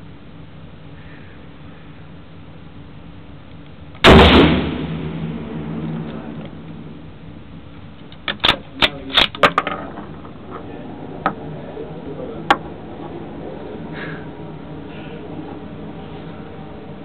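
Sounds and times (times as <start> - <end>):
handling clicks and knocks: 7.8 - 11.4.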